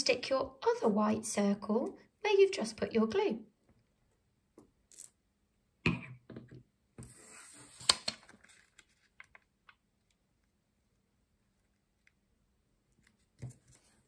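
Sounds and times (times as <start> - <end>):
paper rustle: 7.6 - 9.4.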